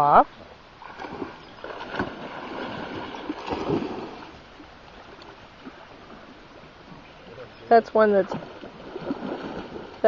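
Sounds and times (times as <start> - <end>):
dogs splashing in water: 0.8 - 4.3, 8.0 - 10.0.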